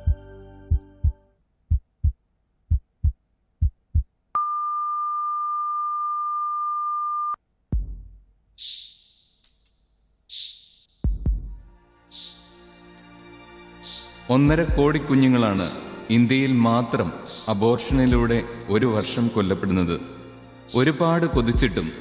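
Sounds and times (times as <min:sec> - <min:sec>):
music: 0:00.0 - 0:01.4, 0:07.8 - 0:08.2, 0:11.0 - 0:22.0
heartbeat thumps: 0:00.0 - 0:04.2, 0:07.7 - 0:08.3, 0:11.0 - 0:11.8, 0:17.9 - 0:18.5.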